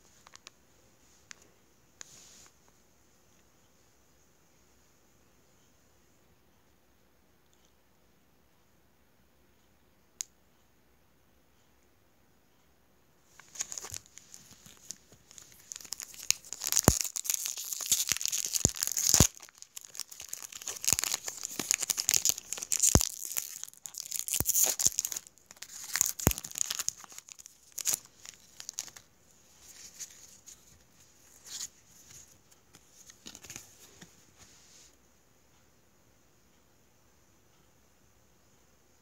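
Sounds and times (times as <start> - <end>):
foil wrapper tearing and crinkling: 13.4 - 29.0.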